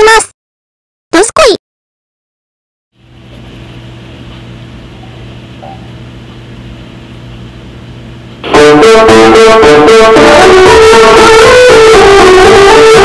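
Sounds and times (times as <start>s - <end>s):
low hum with hiss: 3.0s - 8.7s
guitar and piano music: 8.4s - 13.0s.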